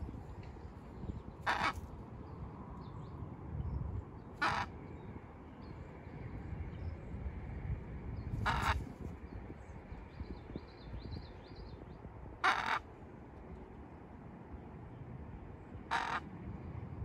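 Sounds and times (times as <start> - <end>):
macaw squawking: 1.4 - 1.8, 4.4 - 4.7, 8.5 - 8.8, 12.4 - 12.8, 15.9 - 16.3.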